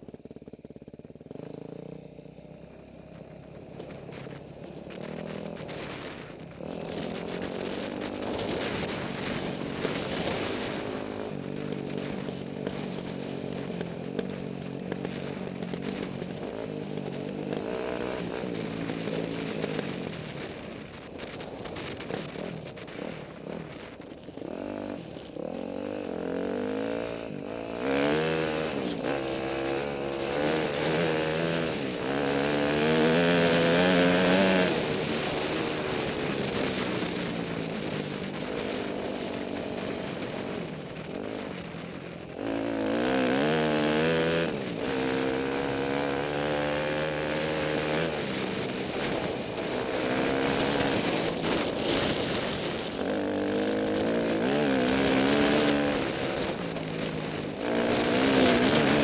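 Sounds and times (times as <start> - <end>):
dirt bike engine revving: 23.8 - 37.3, 38.3 - 59.0.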